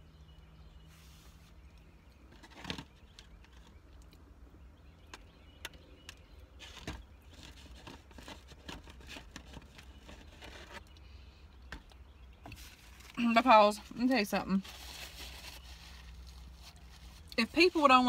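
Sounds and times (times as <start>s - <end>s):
low steady hum: 0.0s - 18.0s
small clicks and rustles: 1.3s - 4.2s, 5.1s - 13.2s.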